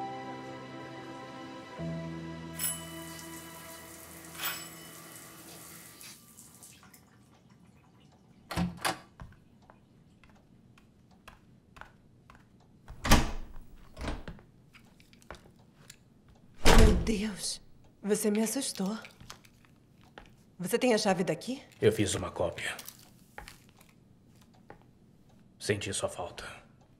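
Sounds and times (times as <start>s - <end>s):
music: 0.0s - 5.4s
door being unlocked and opened: 8.5s - 9.1s, 12.9s - 14.4s.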